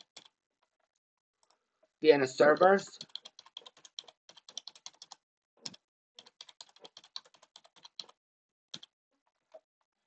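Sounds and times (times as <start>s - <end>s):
computer keyboard typing: 0.0s - 0.4s, 3.0s - 8.2s.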